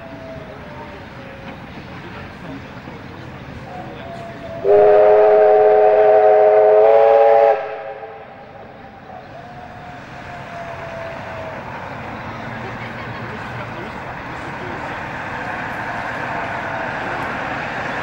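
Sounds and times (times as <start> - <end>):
steam locomotive whistle: 4.0 - 11.0.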